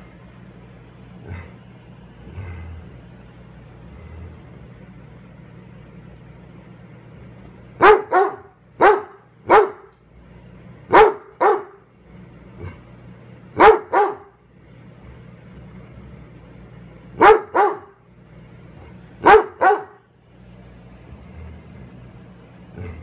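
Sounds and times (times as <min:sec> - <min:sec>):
dog barking: 0:07.8 - 0:09.9, 0:10.9 - 0:11.8, 0:13.6 - 0:14.4, 0:17.2 - 0:18.0, 0:19.2 - 0:20.1.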